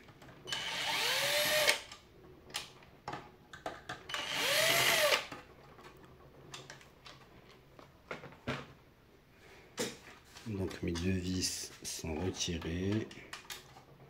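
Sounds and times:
cordless drill motor bursts: 0:00.5 - 0:01.8, 0:04.2 - 0:05.3.

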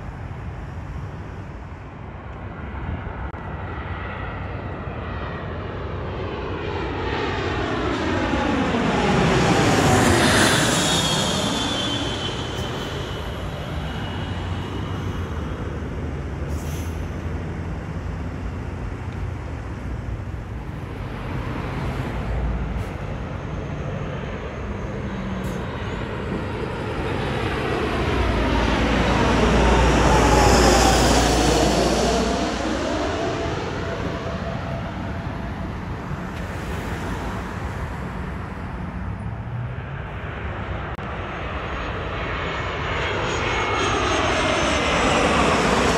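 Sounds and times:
jet aircraft whine: 0:00.0 - 0:45.9
road traffic: 0:00.0 - 0:45.9
heavy truck passing: 0:09.3 - 0:39.7.

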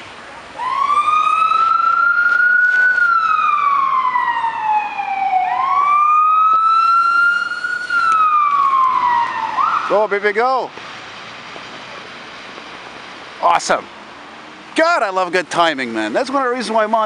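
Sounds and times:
siren electronic wail: 0:00.6 - 0:10.2.

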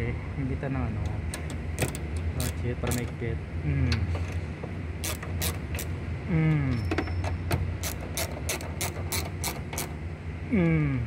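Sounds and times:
steady low hum: 0:00.0 - 0:11.0
socket wrench clicking: 0:05.0 - 0:05.9, 0:07.8 - 0:10.0.

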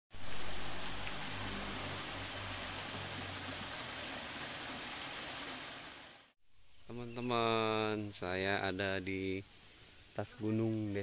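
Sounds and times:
water splashing over stones: 0:00.1 - 0:06.2.

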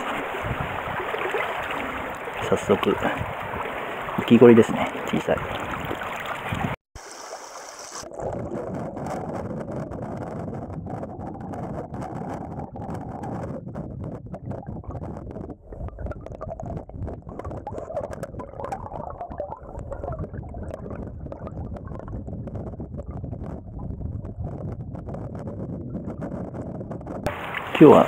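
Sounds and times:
muffled underwater water rush: 0:00.0 - 0:28.0
bubbles and gravel clicking: 0:08.0 - 0:27.6.

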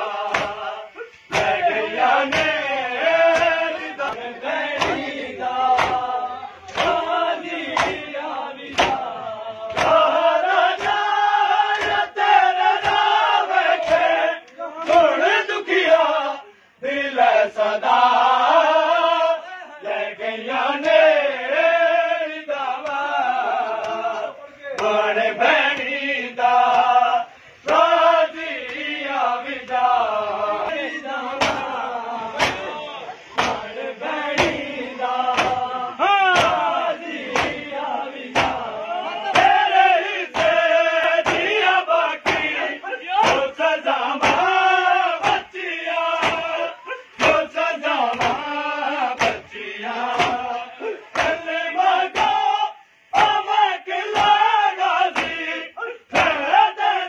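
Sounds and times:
men chanting: 0:00.0 - 0:57.0
hands slapping chests: 0:00.2 - 0:08.1, 0:08.7 - 0:15.1, 0:31.4 - 0:31.8, 0:32.4 - 0:32.7, 0:33.3 - 0:33.7, 0:34.3 - 0:35.7, 0:36.3 - 0:37.6, 0:38.2 - 0:38.7, 0:39.3 - 0:39.6, 0:40.3 - 0:41.6, 0:42.2 - 0:43.6, 0:44.2 - 0:44.6, 0:45.2 - 0:47.5, 0:48.1 - 0:48.5, 0:49.1 - 0:51.5, 0:52.1 - 0:52.4, 0:55.1 - 0:55.4.

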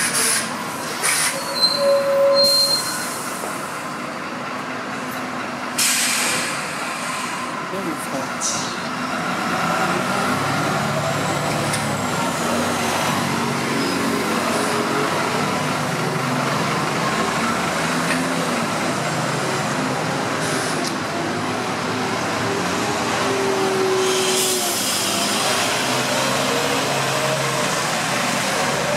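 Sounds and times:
bus engine drone: 0:00.0 - 0:28.9
air hiss burst: 0:05.8 - 0:07.4.

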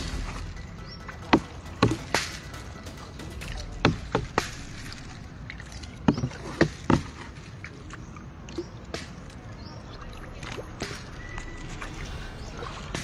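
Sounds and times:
sharp knocks: 0:00.0 - 0:05.2
water swishing and splashing: 0:00.0 - 0:13.0.

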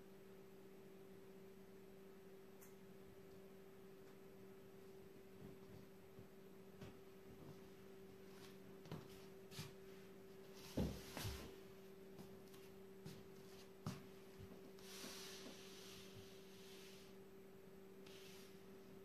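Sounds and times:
faint hum: 0:00.0 - 0:19.0
flip-flops stepping on a floor: 0:10.6 - 0:11.6.

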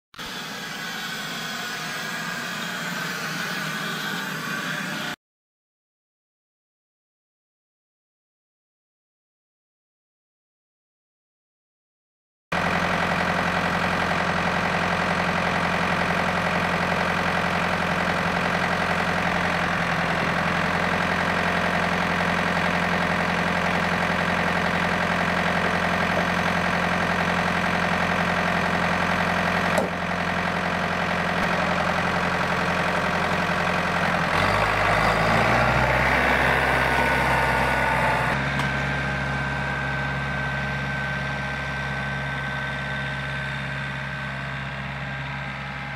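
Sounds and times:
tractor diesel engine idling: 0:12.6 - 0:45.9.

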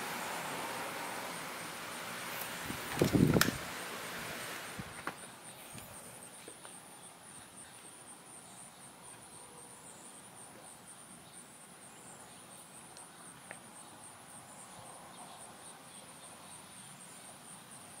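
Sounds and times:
soft hiss: 0:00.0 - 0:09.3
insects trilling: 0:00.0 - 0:18.0.

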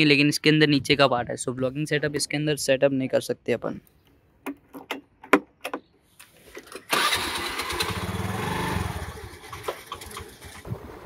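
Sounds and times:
scooter engine starting and running: 0:06.5 - 0:11.0.

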